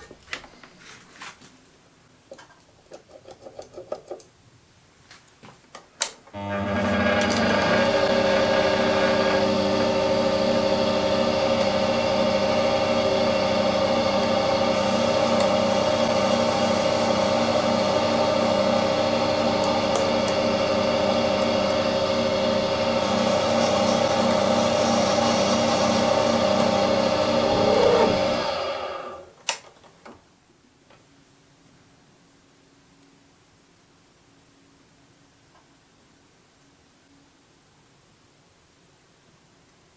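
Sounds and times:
lathe motor humming: 6.4s - 29.3s
high hiss of cutting metal: 13.5s - 19.0s, 23.0s - 28.0s.

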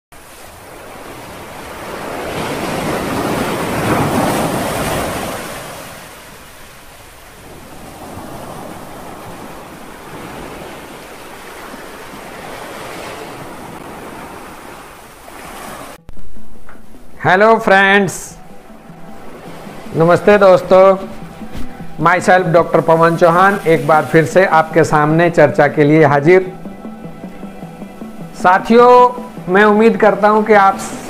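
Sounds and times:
waves washing onto a beach: 0.2s - 16.0s.

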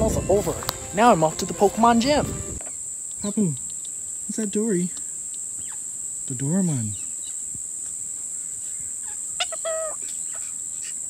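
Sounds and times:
high-pitched insect chorus: 0.0s - 11.0s
bird squawk: 8.6s - 11.0s.

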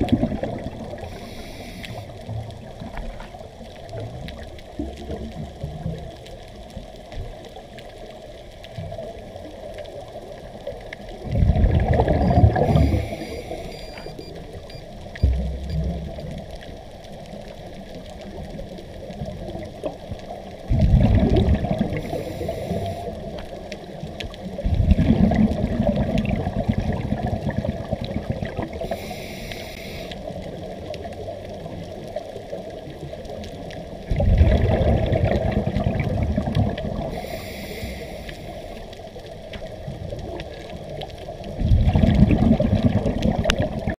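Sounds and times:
regulator bubbles exhaled underwater: 0.0s - 44.0s
soft hissing: 0.8s - 3.7s, 12.5s - 15.0s, 21.8s - 24.5s, 28.8s - 34.0s, 36.8s - 41.0s.

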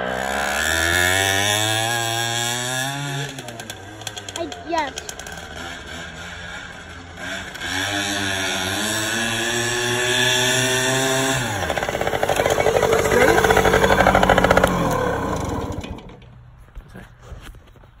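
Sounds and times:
small two-stroke engine running: 0.0s - 16.4s.

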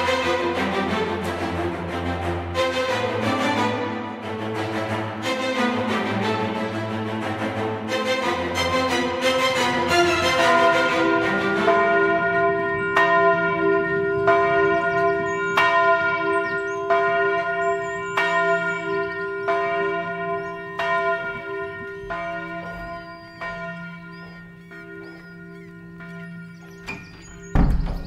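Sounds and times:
church bell tolling: 9.4s - 28.0s.

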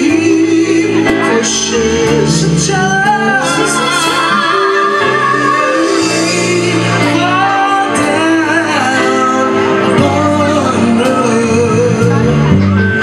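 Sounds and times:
voices singing together: 0.0s - 12.4s.

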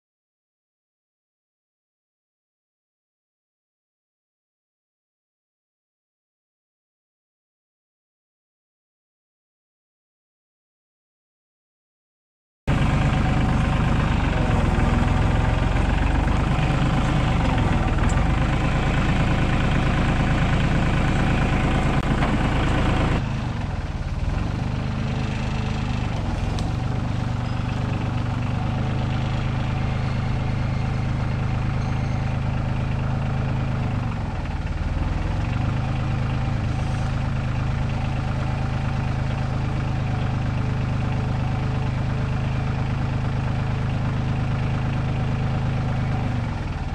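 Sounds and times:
tractor engine running: 12.7s - 46.9s.

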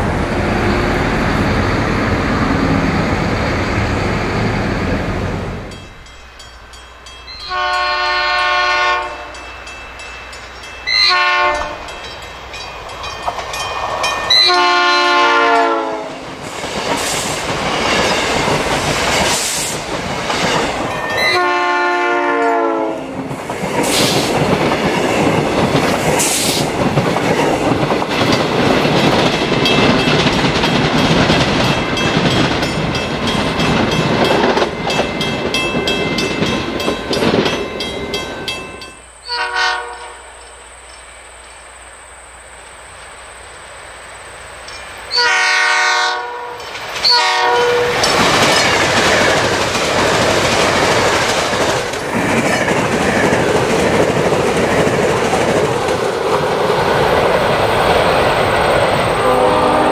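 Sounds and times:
train wheels rushing on rails: 0.0s - 59.9s
train horn blasts: 7.4s - 9.5s, 10.9s - 12.0s, 14.3s - 16.4s, 21.2s - 23.3s, 39.2s - 40.6s, 45.1s - 48.1s, 59.2s - 59.9s.

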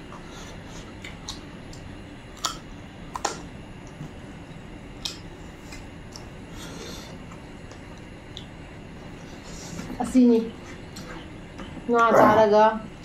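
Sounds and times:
low background hum: 0.0s - 13.0s
mouth clicks and smacks: 2.4s - 3.5s.

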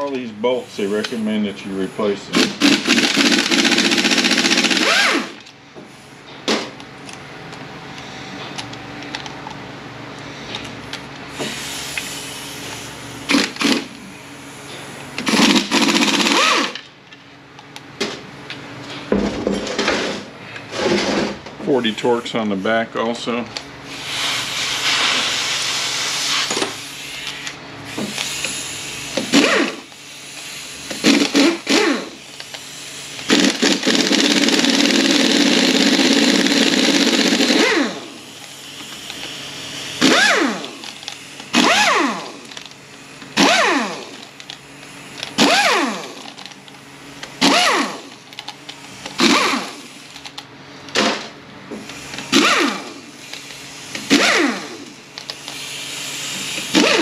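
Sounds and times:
power tool whining: 2.4s - 5.4s, 15.2s - 16.8s, 27.3s - 30.0s, 30.9s - 32.6s, 33.2s - 44.6s, 45.2s - 46.3s, 47.4s - 48.3s, 49.0s - 50.2s, 51.9s - 57.0s.

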